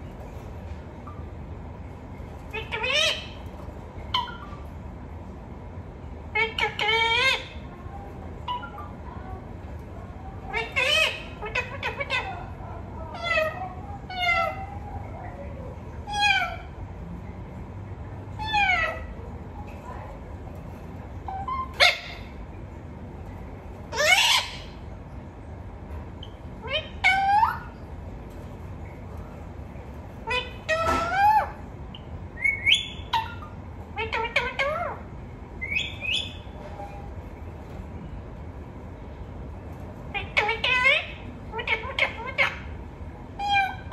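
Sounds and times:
parakeet calling: 0:02.4 - 0:04.7, 0:06.3 - 0:07.7, 0:08.4 - 0:09.0, 0:10.4 - 0:15.4, 0:16.0 - 0:16.8, 0:18.3 - 0:19.2, 0:21.2 - 0:22.5, 0:23.9 - 0:24.9, 0:26.2 - 0:28.0, 0:30.1 - 0:37.1, 0:40.1 - 0:43.9.

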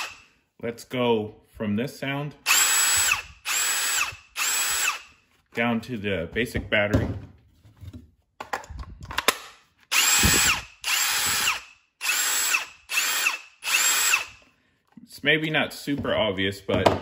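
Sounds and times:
impact driver motor whine: 0:00.0 - 0:00.3, 0:02.5 - 0:05.1, 0:09.9 - 0:14.4.

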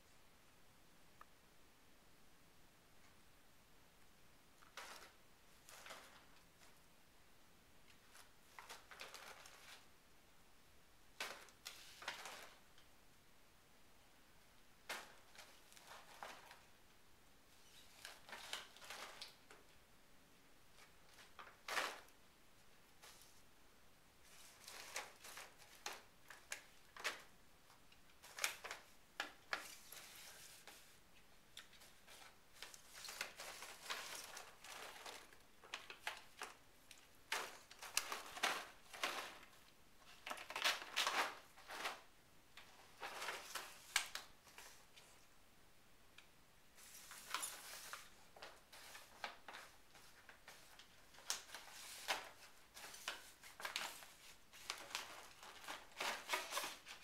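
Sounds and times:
plastic bag crinkling: 0:31.9 - 0:44.8.

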